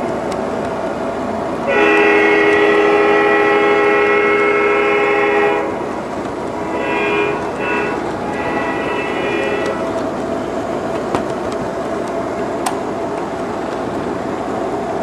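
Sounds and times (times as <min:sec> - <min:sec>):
train rolling on track: 0:00.0 - 0:15.0
model train horn blasts: 0:01.6 - 0:05.9, 0:06.6 - 0:10.0.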